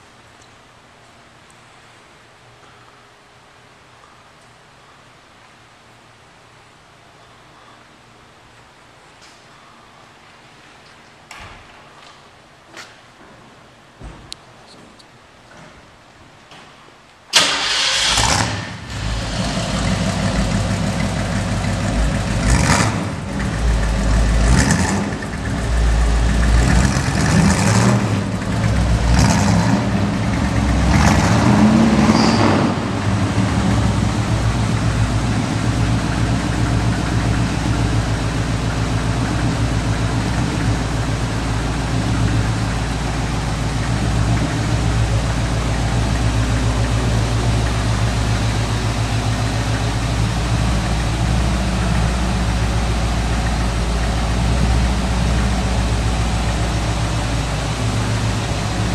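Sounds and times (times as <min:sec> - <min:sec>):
truck engine revving and idling: 0:17.6 - 0:58.9.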